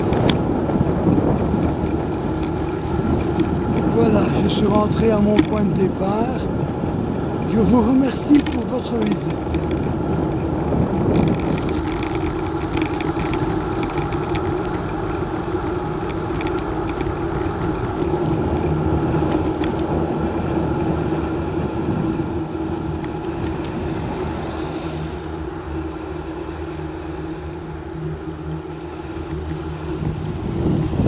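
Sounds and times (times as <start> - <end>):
vehicle driving on paved road: 0.0 - 31.0
light ticks: 5.0 - 5.6.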